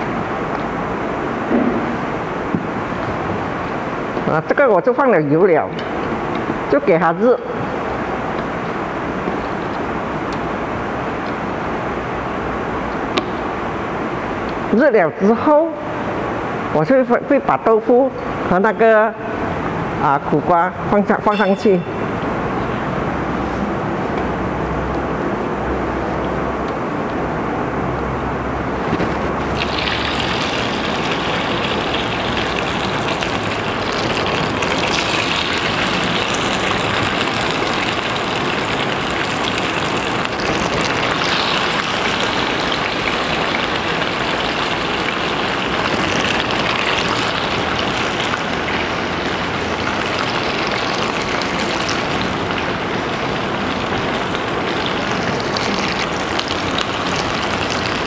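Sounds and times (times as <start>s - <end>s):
food sizzling in oil: 29.4s - 58.0s.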